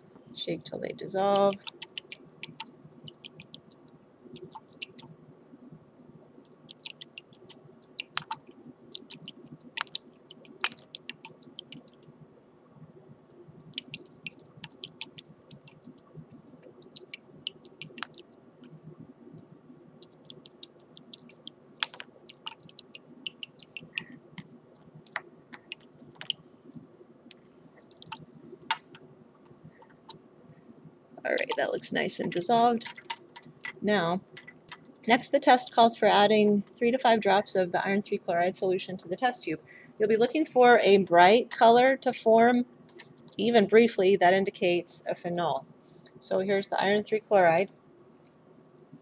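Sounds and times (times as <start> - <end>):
glass test tubes clicking: 32.8 - 35.2.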